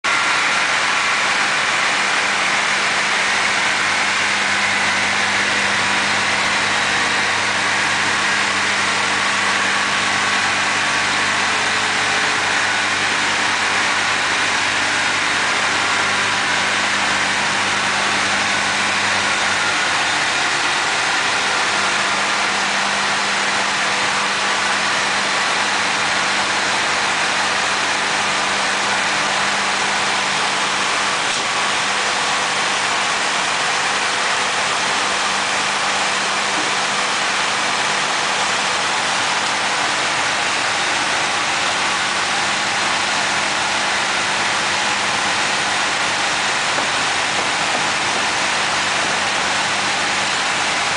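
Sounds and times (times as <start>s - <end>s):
sawing machine humming: 0.0s - 50.9s.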